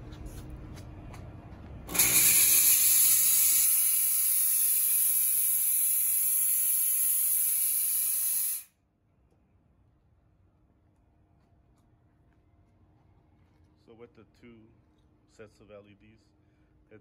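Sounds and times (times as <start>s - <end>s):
fog machine hissing: 1.9s - 8.7s.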